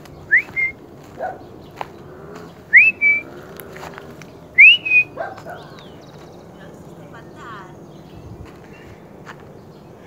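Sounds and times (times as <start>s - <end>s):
person whistling: 0.3s - 0.8s, 2.7s - 3.2s, 4.6s - 5.1s
short lower call: 0.3s - 0.8s, 2.7s - 3.3s, 4.6s - 5.1s.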